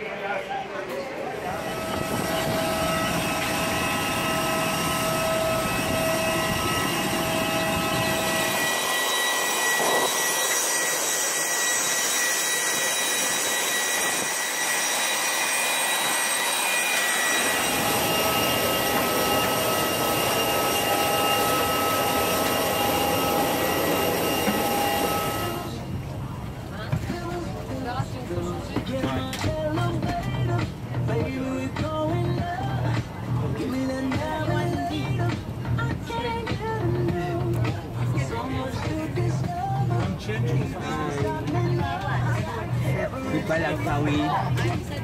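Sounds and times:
jet engines whining: 0.0s - 26.6s.

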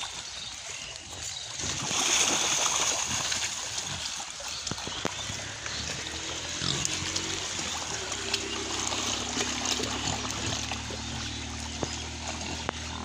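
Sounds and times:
pigs splashing in muddy water: 0.0s - 13.0s.

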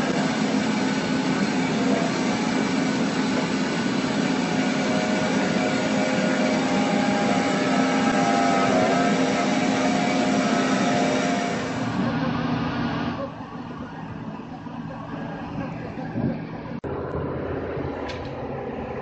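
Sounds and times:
hydraulic auger boring into soil: 0.0s - 12.1s
excavator diesel engine: 0.0s - 19.0s.

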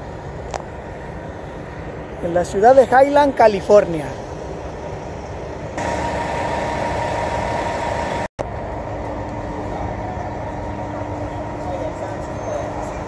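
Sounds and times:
vehicle engine humming: 4.2s - 13.0s.

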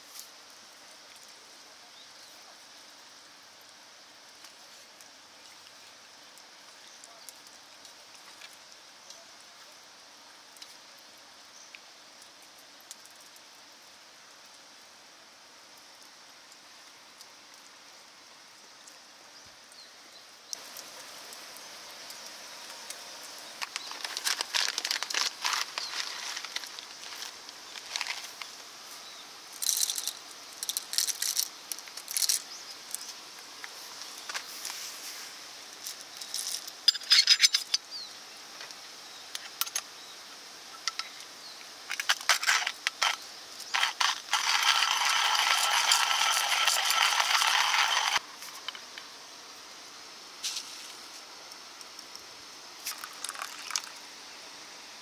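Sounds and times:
faint outdoor hiss: 0.0s - 55.0s
small ticks: 20.5s - 28.6s, 29.5s - 34.8s
foil bag crinkling: 23.5s - 28.5s, 42.0s - 48.7s, 52.8s - 53.9s.

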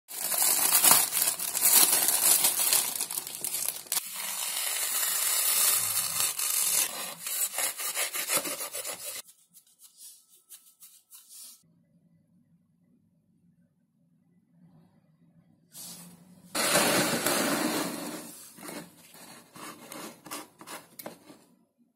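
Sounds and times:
plastic bag crinkling: 0.1s - 7.0s
foam sponge being cut: 4.0s - 9.3s.

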